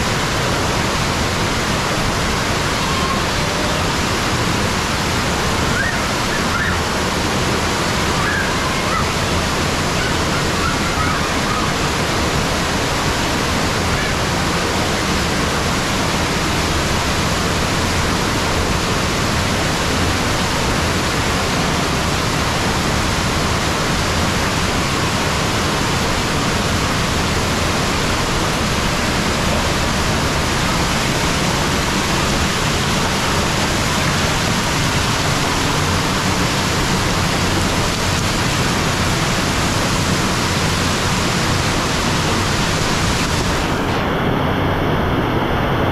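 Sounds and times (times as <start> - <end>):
waterfall rushing onto rocks: 0.0 - 45.2.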